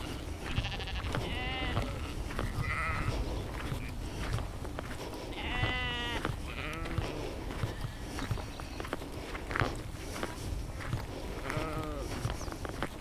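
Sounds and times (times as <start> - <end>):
sheep bleating: 0.0 - 4.0, 5.3 - 8.1, 11.4 - 12.3.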